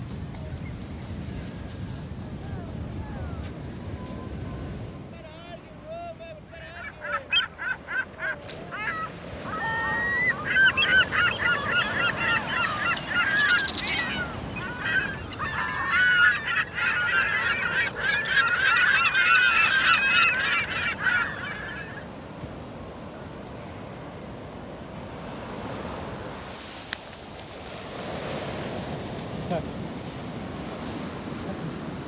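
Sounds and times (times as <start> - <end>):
flock of birds honking: 6.3 - 22.9.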